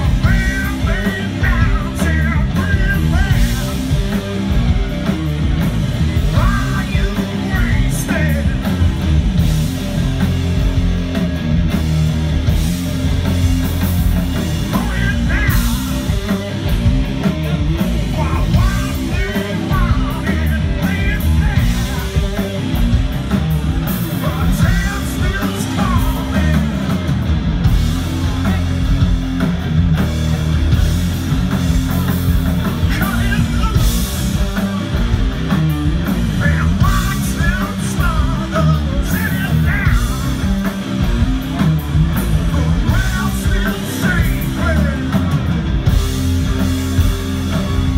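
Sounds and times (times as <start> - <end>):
person singing: 0.0 - 5.0, 6.1 - 9.0, 14.6 - 23.0, 23.8 - 27.1, 31.7 - 35.2, 36.2 - 40.9, 42.2 - 45.6
live rock band playing: 0.0 - 47.9.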